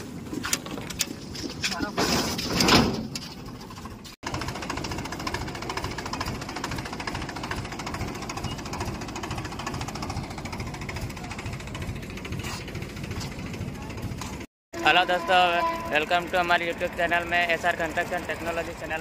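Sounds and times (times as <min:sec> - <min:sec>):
diesel tractor engine knocking: 0:03.4 - 0:14.5, 0:16.0 - 0:19.0.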